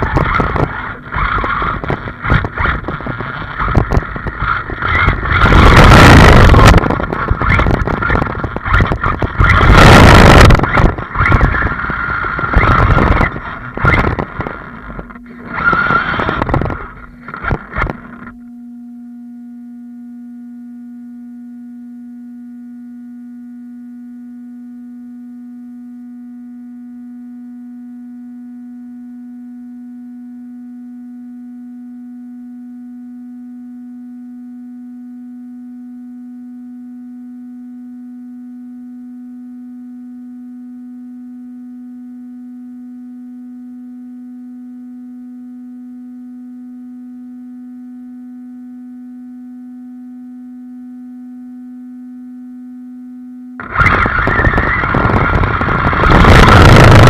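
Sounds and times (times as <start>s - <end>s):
rc car driving noise: 0.0s - 18.4s, 53.6s - 57.0s
low electronic tone: 0.0s - 57.0s.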